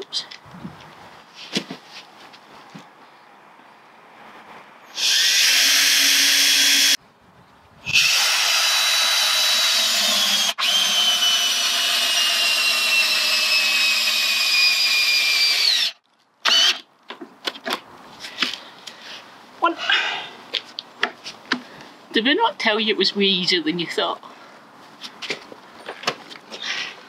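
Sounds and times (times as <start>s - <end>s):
cordless drill boring into wood: 4.9s - 7.0s, 7.9s - 16.8s.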